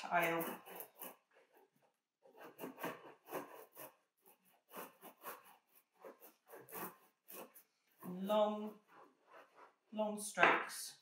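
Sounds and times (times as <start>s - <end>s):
brayer rolling ink on tile: 0.0s - 10.6s.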